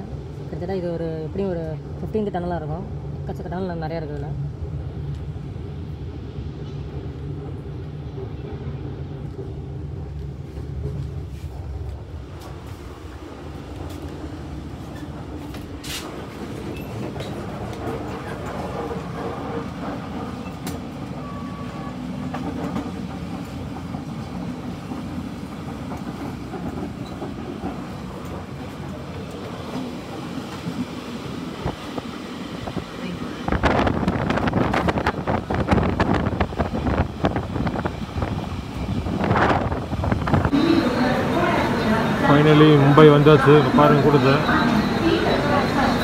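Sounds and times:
train wheels rumbling on rails: 0.0 - 46.0.

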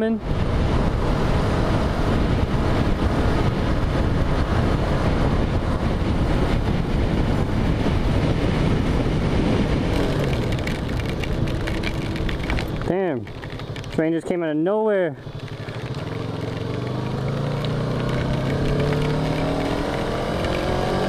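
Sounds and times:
motorcycle engine at speed: 0.0 - 14.3, 15.2 - 21.0
wind rushing over microphone: 0.0 - 14.6, 15.2 - 21.0
quick clicks: 9.9 - 14.0, 15.3 - 20.8.

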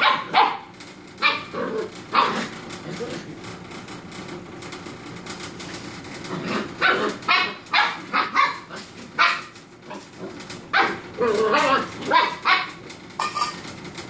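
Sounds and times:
puppies barking: 0.0 - 2.8, 6.4 - 13.5.

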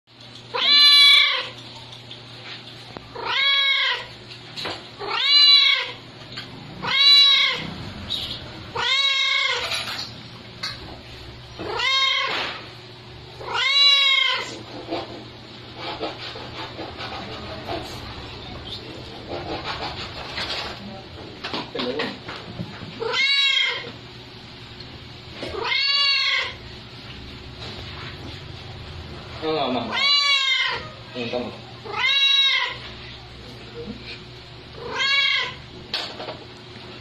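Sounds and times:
cat meowing: 0.5 - 1.6, 3.1 - 4.1, 5.0 - 6.0, 6.8 - 7.8, 8.7 - 9.9, 11.6 - 12.5, 13.4 - 14.6, 23.0 - 24.0, 25.5 - 26.6, 29.8 - 33.1, 34.8 - 35.6.

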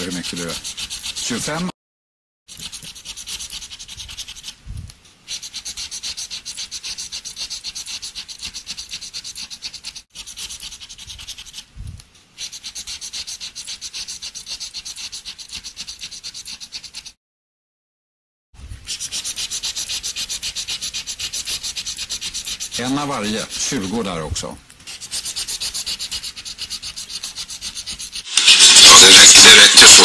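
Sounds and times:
plastic scraper rasping scratch card: 0.0 - 1.7, 2.5 - 4.6, 5.3 - 11.7, 12.4 - 17.2, 24.9 - 30.0.

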